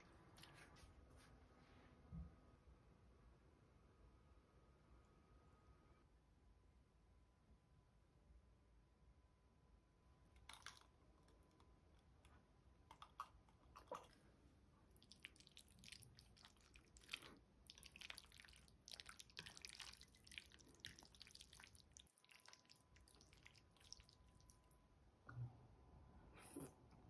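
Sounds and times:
creamy pasta squelching: 10.4 - 11.4, 12.9 - 24.7.

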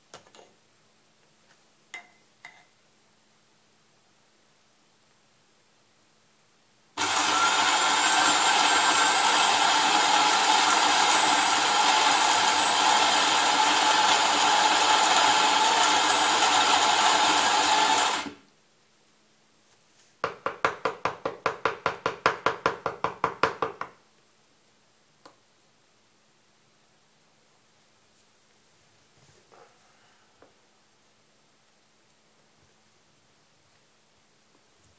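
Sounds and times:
electric coffee grinder whirring: 7.0 - 18.4.

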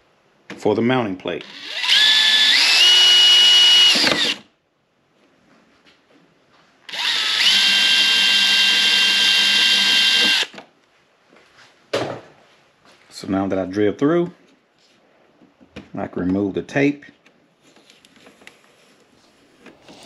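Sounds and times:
power drill motor whine: 1.4 - 4.4, 6.9 - 10.6.

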